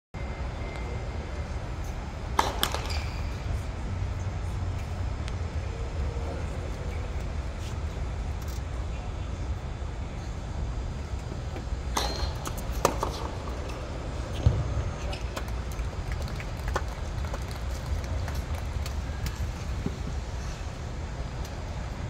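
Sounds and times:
tennis ball struck with racket: 0:02.4 - 0:03.2.

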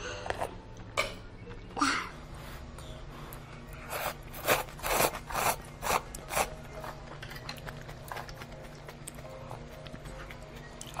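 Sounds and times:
room hum: 0:00.0 - 0:11.0
person slurping noodle soup: 0:03.9 - 0:06.5.

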